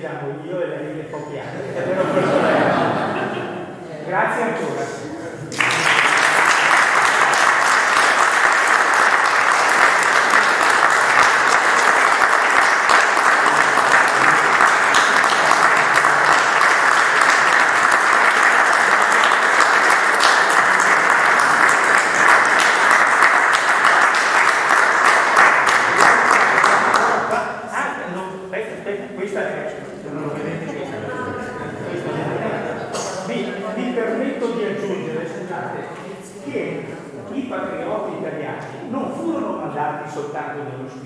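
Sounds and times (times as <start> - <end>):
audience applauding: 5.5 - 27.5.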